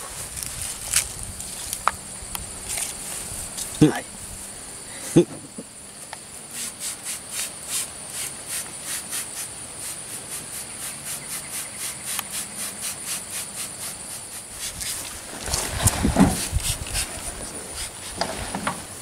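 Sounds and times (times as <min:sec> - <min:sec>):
crickets chirping: 0:00.0 - 0:19.0
spray bottle hissing: 0:06.6 - 0:15.1
low rustle: 0:14.6 - 0:19.0.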